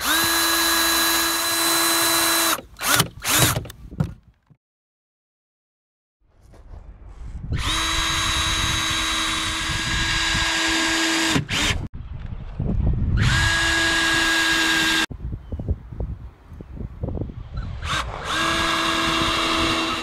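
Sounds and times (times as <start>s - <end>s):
cordless drill driving screws: 0.0s - 4.2s, 17.8s - 20.0s.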